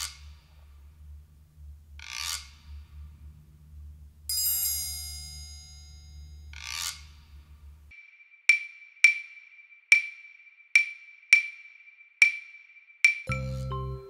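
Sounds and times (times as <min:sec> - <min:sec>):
steady low hum: 0:00.0 - 0:07.9
coin spinning with rasping swishes: 0:01.9 - 0:03.2, 0:04.4 - 0:07.6
bright metallic chime: 0:04.3 - 0:06.5.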